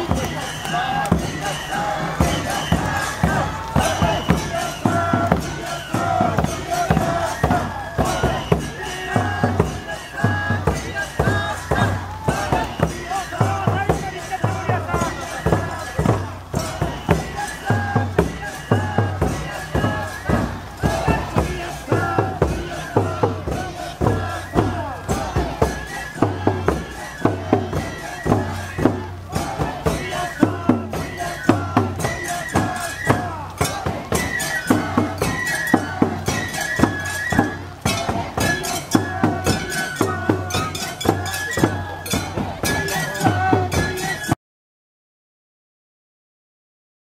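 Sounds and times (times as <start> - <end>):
drums and clanging percussion: 0.0 - 44.4.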